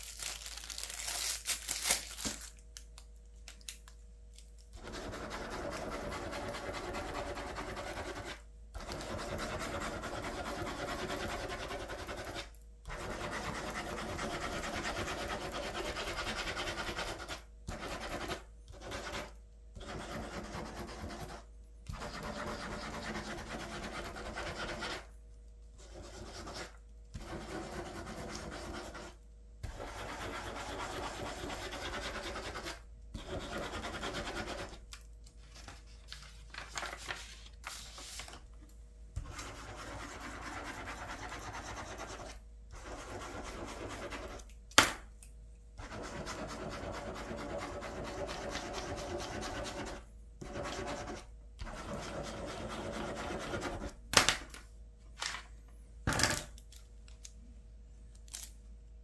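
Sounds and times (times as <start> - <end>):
pen scratching on paper: 4.8 - 25.1, 25.8 - 34.8, 39.2 - 44.4, 45.8 - 54.0.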